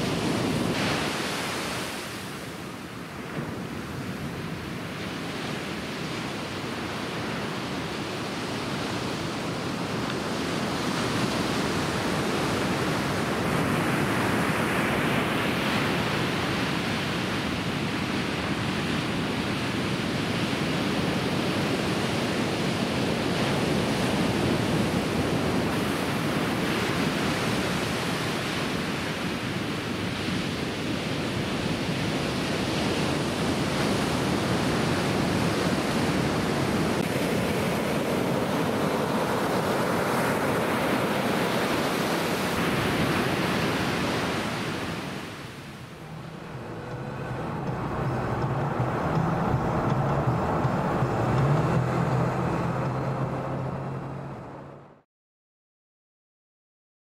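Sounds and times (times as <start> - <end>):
ocean waves breaking: 0.0 - 55.0.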